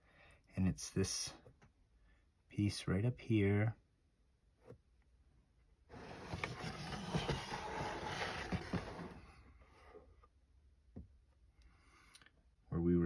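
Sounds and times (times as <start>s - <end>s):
plastic tray scraping on mat: 5.9s - 9.3s.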